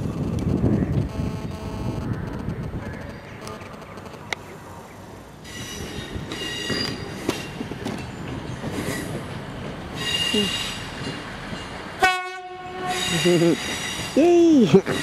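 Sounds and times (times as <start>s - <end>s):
train rumble: 0.0s - 15.0s
train wheels squealing on track: 5.4s - 9.3s, 9.9s - 11.8s, 12.8s - 15.0s.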